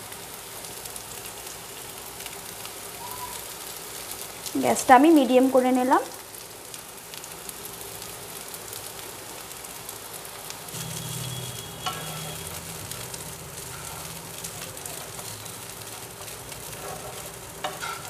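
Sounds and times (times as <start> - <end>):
food sizzling in oil: 0.0 - 18.0
wooden spatula scraping pan: 13.6 - 14.2, 16.0 - 18.0.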